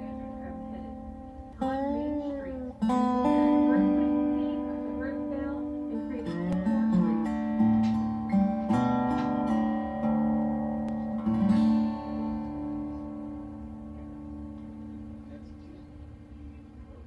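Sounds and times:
acoustic guitar picking and strumming: 0.0s - 16.3s.

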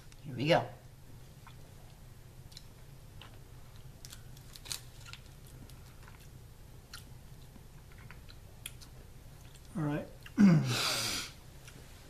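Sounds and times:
candy crunching: 2.5s - 7.1s.

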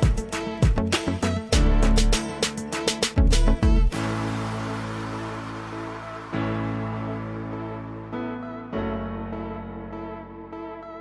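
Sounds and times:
rhythmic music beat: 0.0s - 7.8s.

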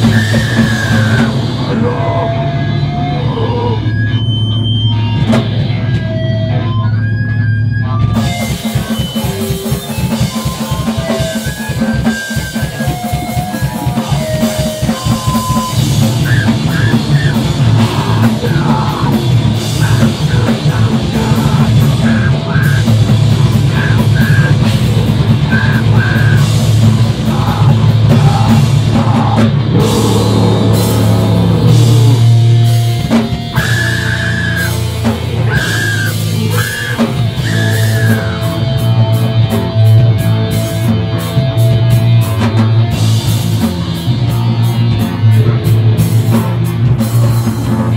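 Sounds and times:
rapid drumming: 0.0s - 3.0s, 7.5s - 47.9s
bass guitar: 0.0s - 47.9s
distorted electric guitar: 0.0s - 47.9s.

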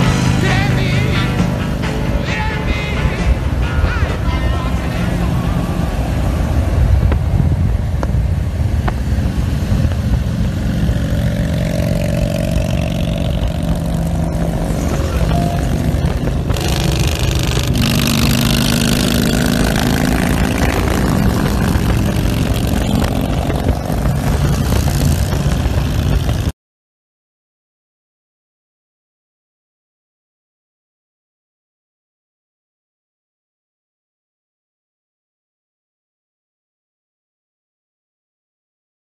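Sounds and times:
highway road noise: 0.0s - 26.5s
motorcycle engine running: 0.0s - 26.5s
wind rush: 2.8s - 26.5s.

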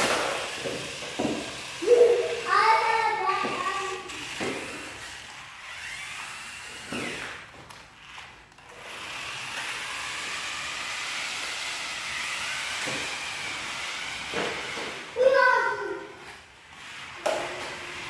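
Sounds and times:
toy car electric motors whirring: 0.0s - 18.0s.

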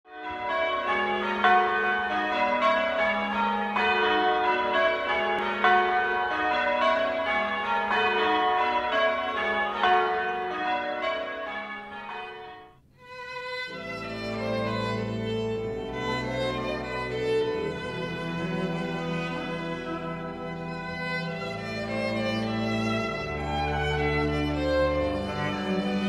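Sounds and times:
church bells change ringing: 0.1s - 26.0s
slow instrumental music: 12.9s - 26.0s.

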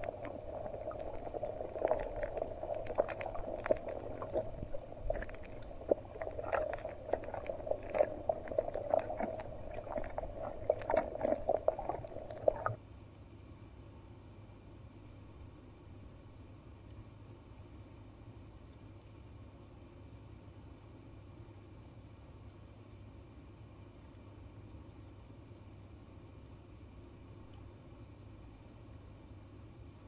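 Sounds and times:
muffled underwater hum: 0.0s - 12.8s
underwater crackles and clicks: 0.0s - 12.8s.

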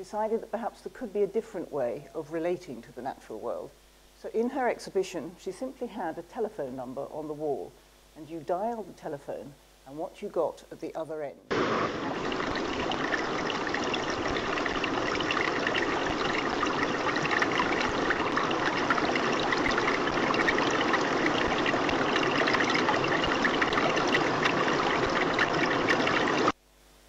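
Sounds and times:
underwater trickling water: 11.5s - 26.6s.

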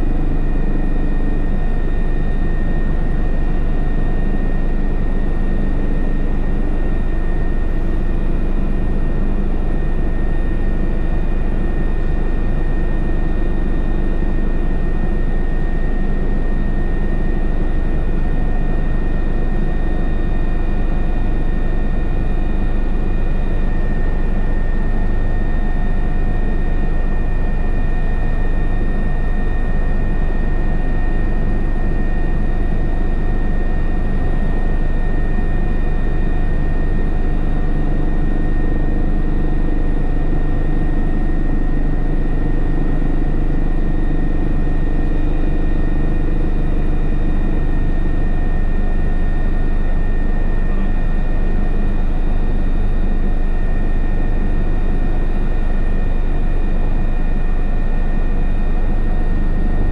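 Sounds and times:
low hum: 0.0s - 4.1s
helicopter turbine whine: 0.0s - 59.9s
low rotor drone: 0.0s - 59.9s.

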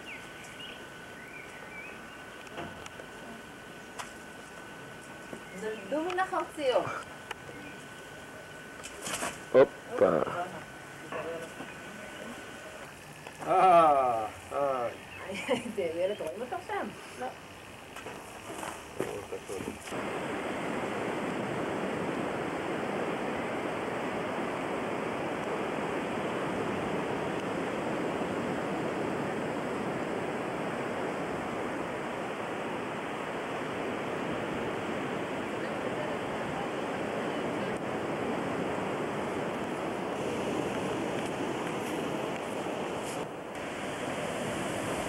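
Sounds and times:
wind: 0.0s - 45.0s
surf rushing: 19.8s - 45.0s.

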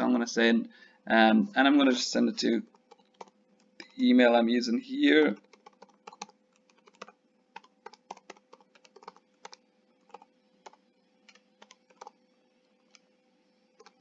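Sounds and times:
faint steady hum: 0.0s - 14.0s
computer keyboard typing: 2.7s - 4.1s, 5.2s - 13.1s, 13.7s - 14.0s.

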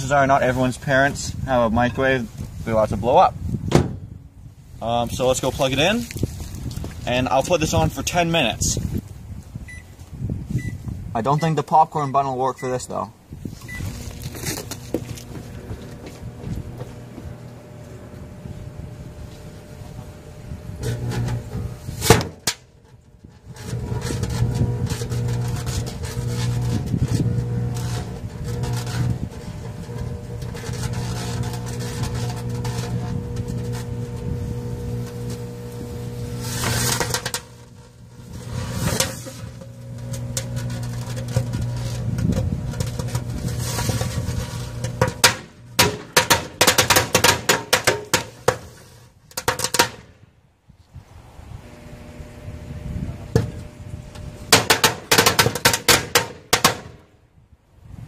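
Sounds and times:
microwave oven humming: 14.8s - 22.0s, 23.7s - 38.6s, 39.5s - 43.5s, 51.6s - 54.5s
sharp bangs: 44.7s - 48.7s, 54.5s - 57.1s
firecrackers popping and crackling: 45.1s - 48.8s, 54.5s - 57.0s.

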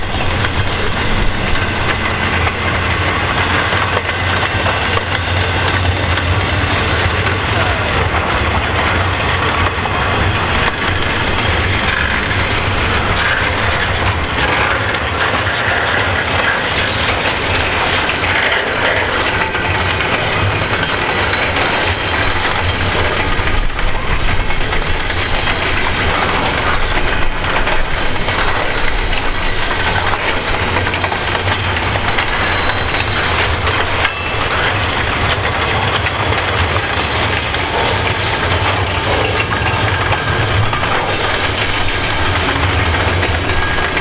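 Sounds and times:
steel wheels rolling on rails: 0.0s - 44.0s
train wheel clicks: 0.0s - 44.0s.

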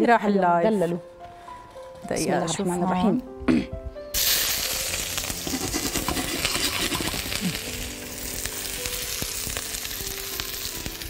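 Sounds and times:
onion sizzling in oil: 4.2s - 11.0s.

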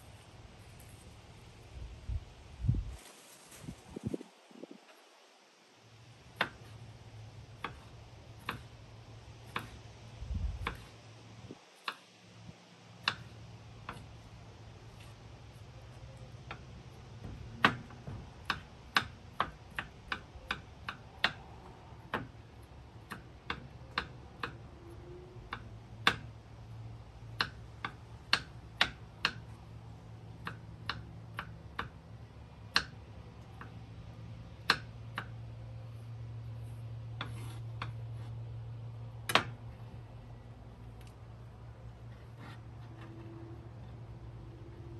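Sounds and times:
knife chopping on wooden board: 7.6s - 8.7s, 9.5s - 9.8s, 17.2s - 21.4s.

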